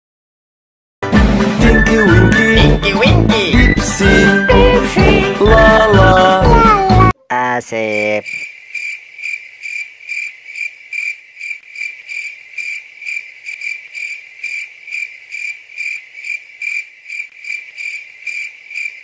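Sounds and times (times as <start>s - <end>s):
cricket chirping: 7.8s - 19.0s.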